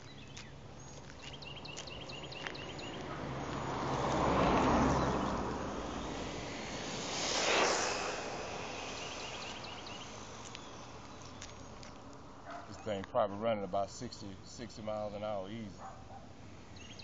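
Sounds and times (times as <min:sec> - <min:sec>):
car passing: 0:00.6 - 0:13.9, 0:14.7 - 0:17.0
rc car speeding past: 0:02.7 - 0:12.4.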